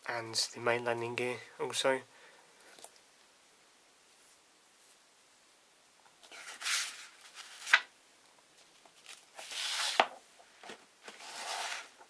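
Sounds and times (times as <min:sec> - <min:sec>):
paper rustling and crackling: 0:06.2 - 0:07.9, 0:08.6 - 0:12.0.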